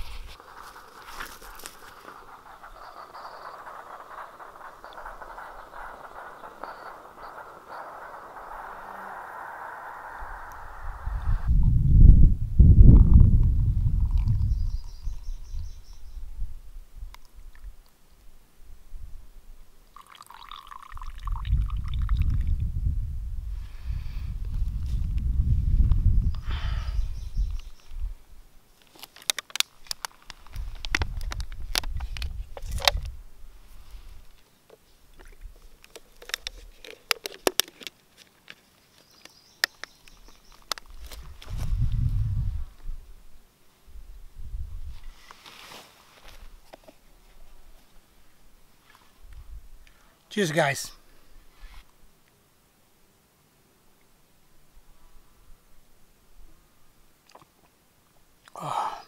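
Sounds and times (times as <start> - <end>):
faint hiss: 0.0 - 12.7, 14.3 - 59.0
low rumble: 0.0 - 14.6
small objects clicking and tapping: 0.4 - 10.8, 28.8 - 33.1, 34.7 - 41.2
coffee pouring into a cup: 19.9 - 22.5.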